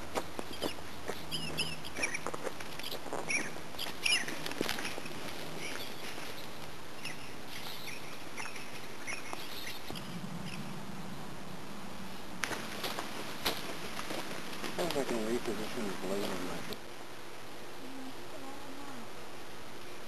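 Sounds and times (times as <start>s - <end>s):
footsteps on gravel: 0.0s - 6.8s, 12.4s - 16.6s
birds chirping: 0.0s - 16.8s.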